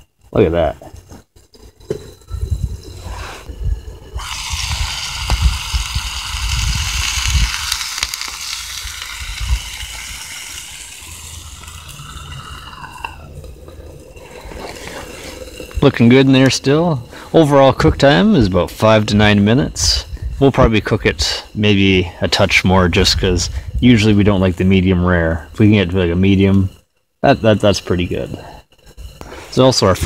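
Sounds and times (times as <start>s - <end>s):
steak sizzling in hot oil: 4.1s - 16.0s
low thumps and rumbles: 17.0s - 21.2s.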